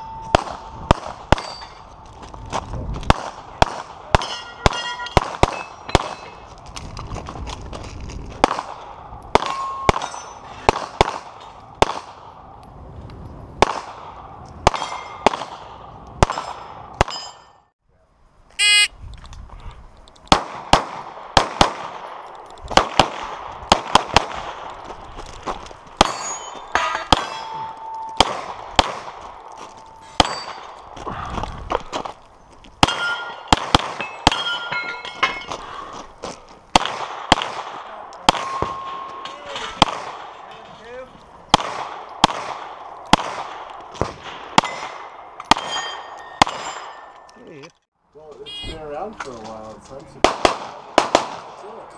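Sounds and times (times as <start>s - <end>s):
steel targets ringing: 1.4s - 1.8s, 4.2s - 6.4s, 26.0s - 28.3s, 29.8s - 30.8s, 32.8s - 35.6s
short electronic beep: 18.6s - 18.9s, 48.5s - 48.8s
rapid pistol shots: 20.3s - 22.1s, 32.8s - 34.4s, 36.7s - 38.8s, 39.8s - 40.3s, 41.5s - 45.8s, 50.2s - 51.6s.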